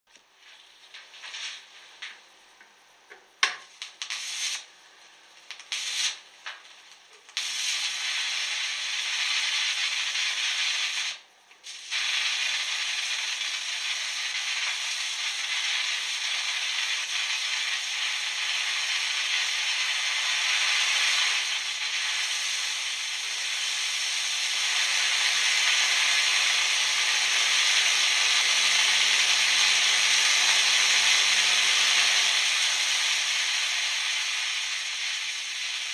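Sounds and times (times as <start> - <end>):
electric arc sputtering: 0.1 - 35.9
electric arc hissing: 0.3 - 35.9.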